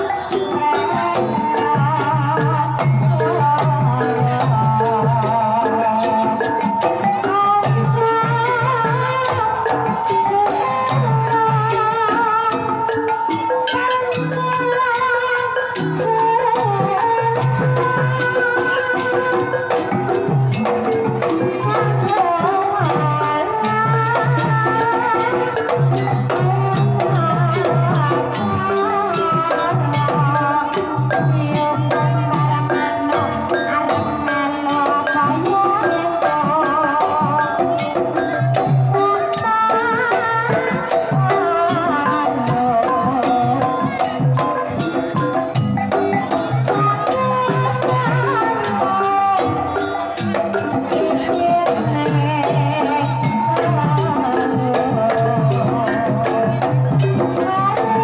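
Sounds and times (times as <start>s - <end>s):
woman singing with vibrato: 0.0s - 58.0s.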